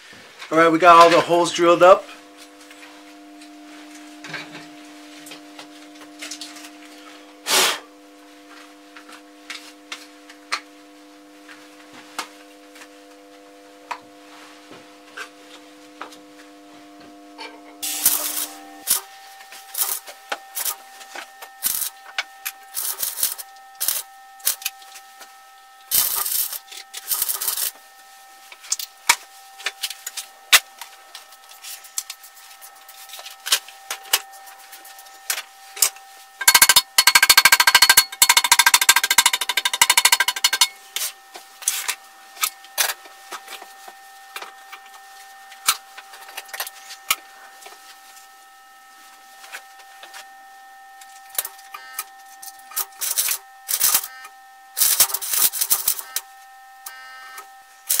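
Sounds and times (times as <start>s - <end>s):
faint steady tone: 16.0s - 58.0s
arc welding crackling: 17.8s - 25.0s, 25.8s - 42.9s, 52.7s - 54.1s, 54.8s - 56.2s
metal tools clicking and knocking: 36.4s - 40.8s.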